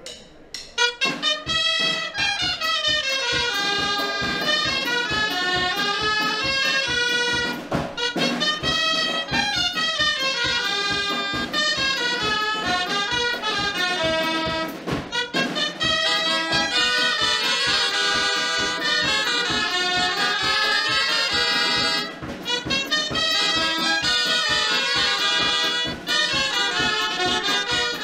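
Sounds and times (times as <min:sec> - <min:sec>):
shawm playing fast folk tune: 0:00.0 - 0:28.0
steady drum beat: 0:00.0 - 0:28.0.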